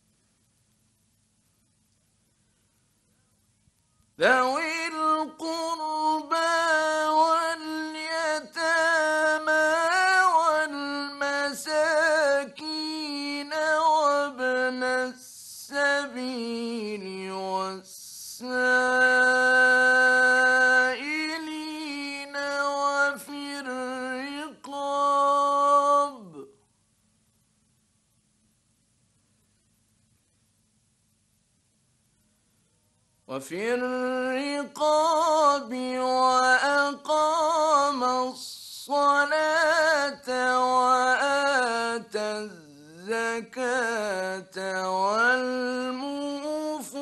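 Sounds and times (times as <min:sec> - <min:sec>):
man chanting: 0:04.2 - 0:26.6, 0:33.3 - 0:47.0.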